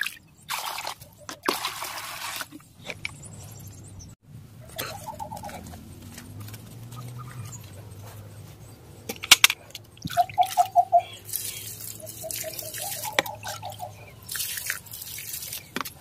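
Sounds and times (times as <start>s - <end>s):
liquid pouring onto soil: 10.4s - 15.7s.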